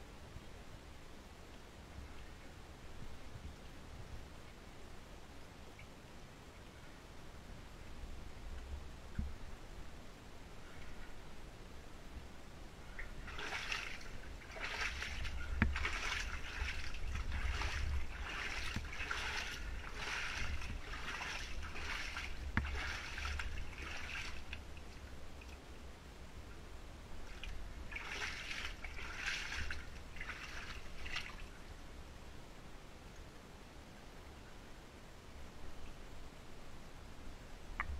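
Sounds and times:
boots sloshing through water: 12.9 - 25.0, 27.3 - 31.5.

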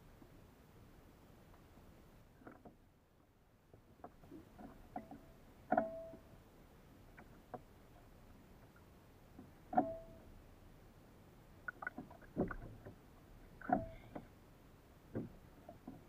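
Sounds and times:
gear knocking against kayak hull: 11.8 - 13.0, 13.6 - 14.3, 15.1 - 16.0.

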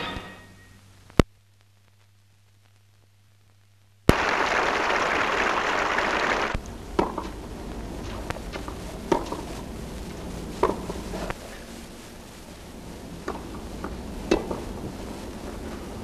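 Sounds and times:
steady hiss: 0.0 - 16.0
crowd applauding: 4.1 - 6.6
tennis balls struck by rackets: 7.0 - 7.4, 8.6 - 9.5, 10.6 - 11.0, 13.3 - 14.6.

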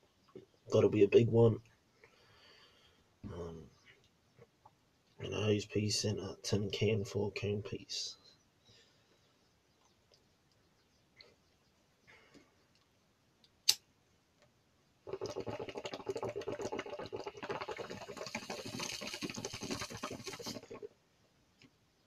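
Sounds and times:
sharp click: 13.6 - 13.9
water gurgling in a bong: 15.0 - 21.0.

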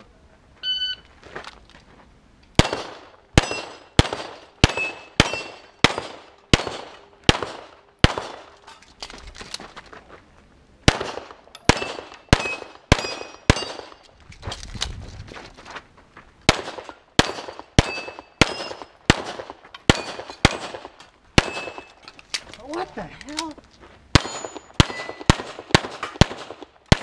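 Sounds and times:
pistol shots: 2.6 - 8.5, 10.9 - 14.0, 16.5 - 21.9, 24.1 - 27.0.

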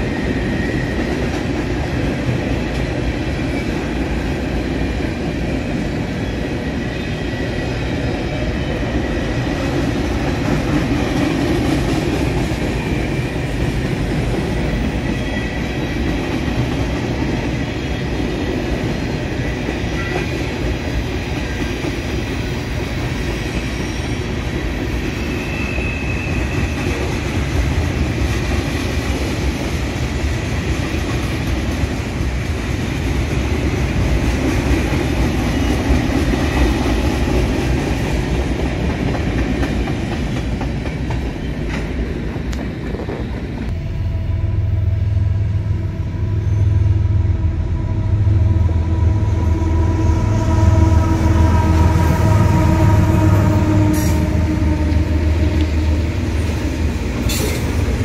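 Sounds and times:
train rumbling over steel bridge: 0.0 - 58.0
train wheel clatter: 56.4 - 58.0.

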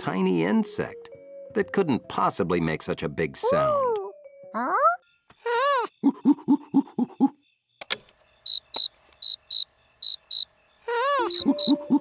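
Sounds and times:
cricket chirping: 5.0 - 12.0.

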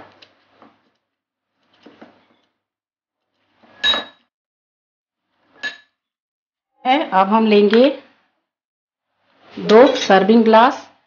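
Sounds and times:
metal utensil knocking glass bowl: 3.8 - 4.2.

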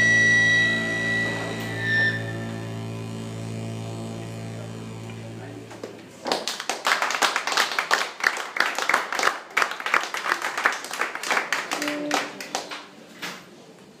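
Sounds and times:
steady low tone: 0.0 - 6.1
audience clapping: 5.8 - 13.0.

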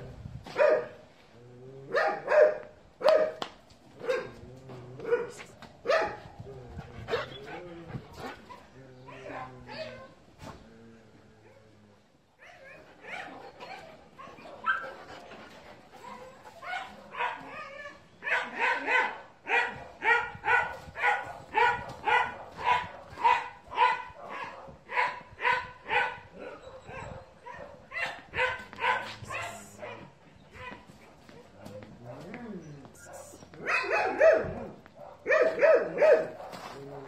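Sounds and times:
dog barking: 0.6 - 1.0, 1.9 - 3.4, 4.0 - 4.4, 5.0 - 6.3, 12.6 - 14.9, 16.6 - 30.8, 33.0 - 36.7
dogs whining and yelping: 6.9 - 10.2, 12.4 - 19.0, 25.9 - 29.6.

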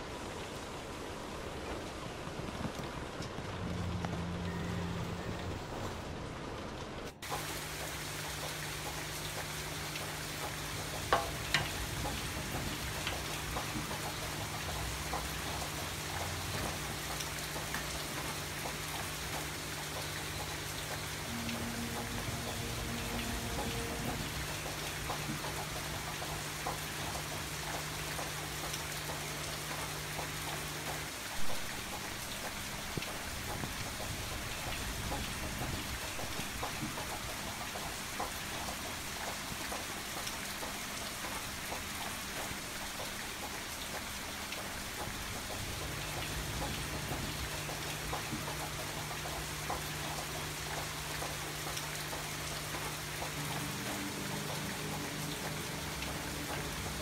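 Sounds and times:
steady rain: 0.0 - 57.0
low steady hum: 20.1 - 27.7.

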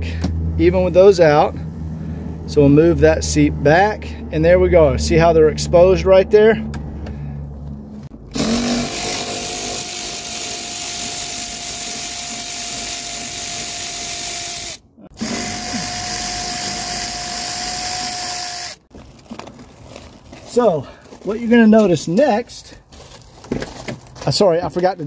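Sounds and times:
electric ratchet whining: 8.2 - 18.9.

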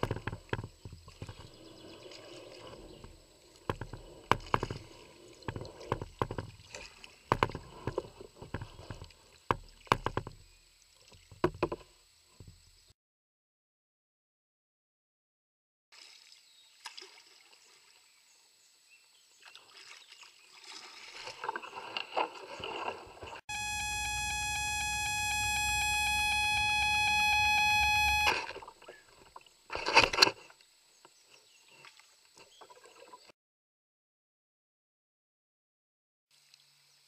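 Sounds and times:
buzzy beep tone: 23.5 - 28.4.

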